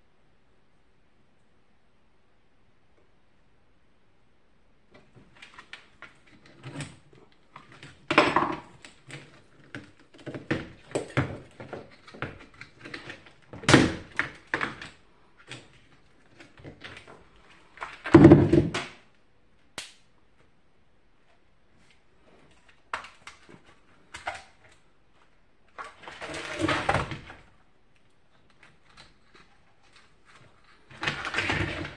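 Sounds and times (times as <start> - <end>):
plastic parts knocking and clattering: 5.0 - 19.0, 25.7 - 27.5, 28.4 - 31.9
loud plastic thunks: 18.0 - 19.0.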